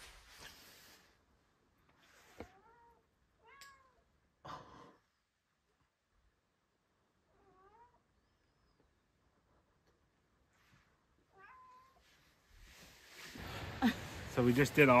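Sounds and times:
cat meowing faintly: 2.3 - 4.1, 7.3 - 8.3, 11.2 - 12.2.

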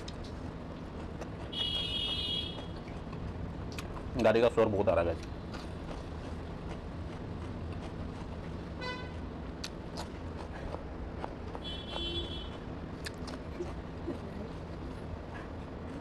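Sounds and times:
crunchy chewing of vegetables: 0.0 - 16.0
road traffic rumble: 0.0 - 16.0
vehicle horn toots: 1.5 - 2.7, 8.8 - 9.2, 11.6 - 12.5.

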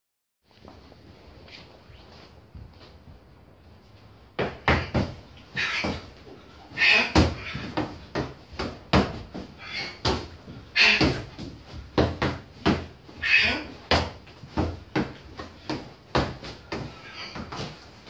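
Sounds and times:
strikes thudding on padded dummy: 4.4 - 6.1, 6.8 - 13.0, 13.8 - 17.8.

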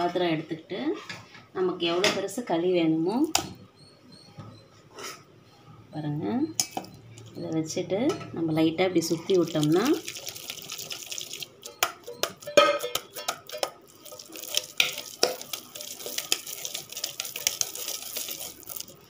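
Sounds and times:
dough swishing in steel bowl: 9.3 - 19.0
bowl knocking: 11.7 - 18.1.

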